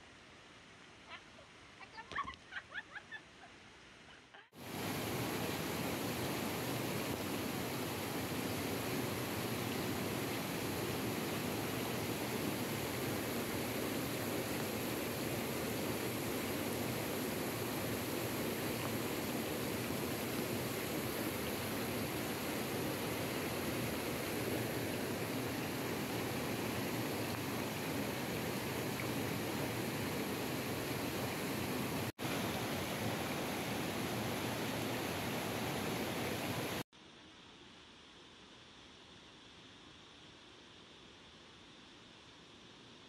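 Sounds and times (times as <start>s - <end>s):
waterfall rushing: 4.6s - 36.8s.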